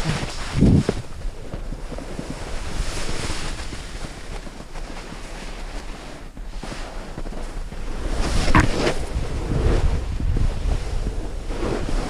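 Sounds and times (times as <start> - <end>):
wind buffeting microphone: 0.0 - 4.5, 7.1 - 12.0
snowboard carving over snow: 0.0 - 12.0.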